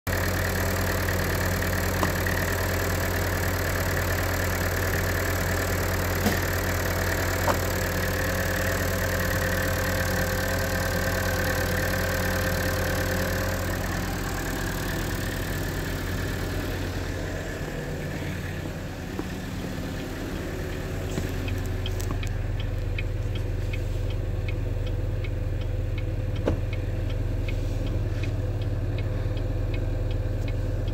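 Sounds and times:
car engine idling: 0:00.1 - 0:30.9
indicator flasher ticking: 0:18.6 - 0:27.6.

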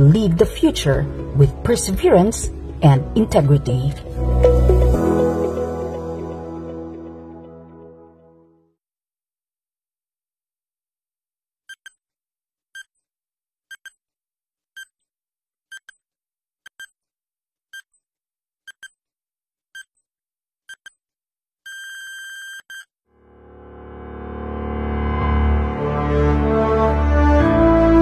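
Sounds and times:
deep swelling sound: 0:23.2 - 0:28.0.

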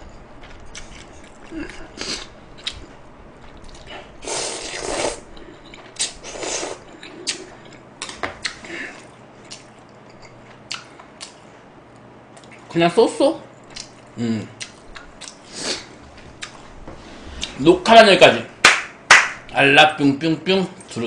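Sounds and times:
chewing with wet mouth clicks: 0:00.4 - 0:03.9, 0:06.9 - 0:12.7, 0:13.7 - 0:15.4
person slurping noodles: 0:04.2 - 0:05.3, 0:06.0 - 0:07.4.

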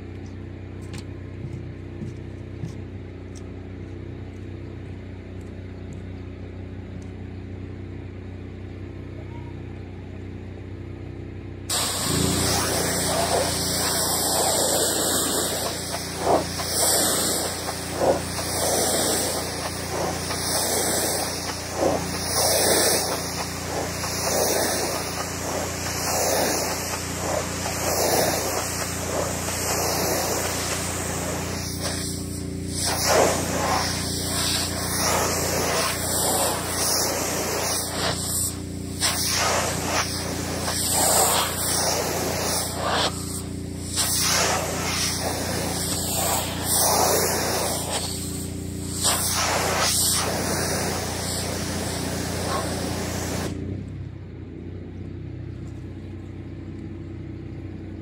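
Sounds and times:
pressure washer spray hissing: 0:11.7 - 0:53.6
pressure washer machine hum: 0:11.7 - 0:53.8.

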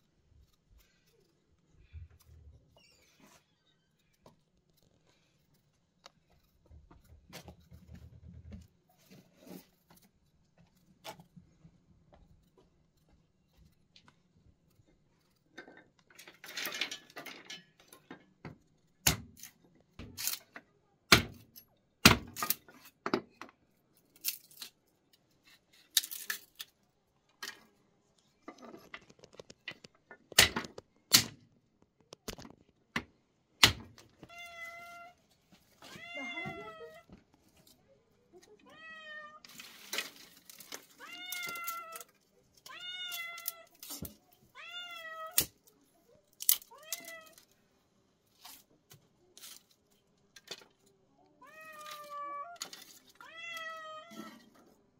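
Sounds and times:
cat meowing: 0:34.3 - 0:35.2, 0:35.9 - 0:37.1, 0:38.6 - 0:39.4, 0:44.5 - 0:45.4, 0:53.2 - 0:54.4
dry sticks cracking: 0:46.4 - 0:47.2.

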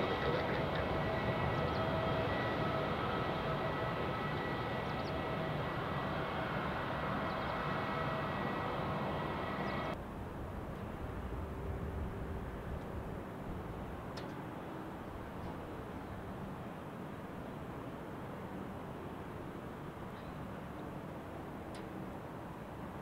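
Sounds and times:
jet engines whining: 0:00.0 - 0:10.0
distant airliner rumble: 0:00.0 - 0:17.4.

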